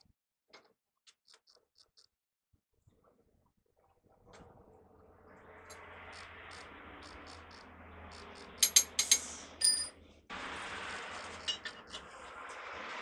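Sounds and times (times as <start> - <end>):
steel tools clinking: 8.6 - 9.9, 11.3 - 12.0.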